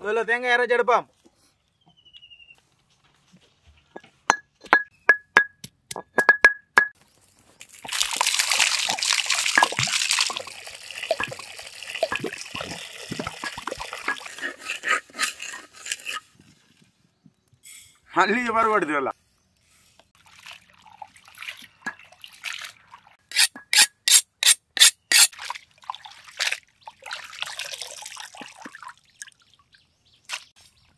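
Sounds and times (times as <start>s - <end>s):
liquid trickling and dripping: 7.0s - 14.6s, 20.2s - 23.3s, 25.3s - 30.0s
liquid pouring and splashing: 7.0s - 15.9s, 20.2s - 23.6s, 25.2s - 29.8s
metal blade striking coconut: 23.3s - 25.3s.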